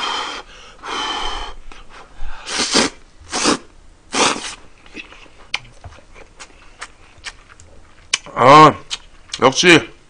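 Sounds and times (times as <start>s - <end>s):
noodles being slurped: 2.5s - 5.0s.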